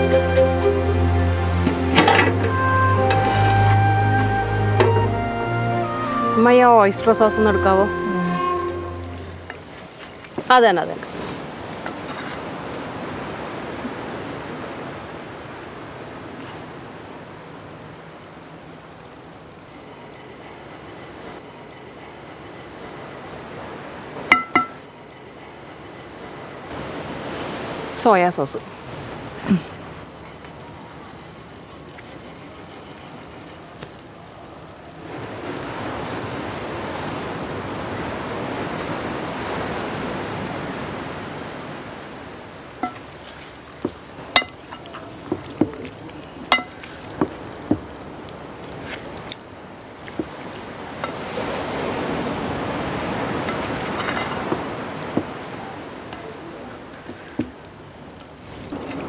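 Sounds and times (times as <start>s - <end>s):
wooden spatula tapping pan: 46.5s - 47.9s.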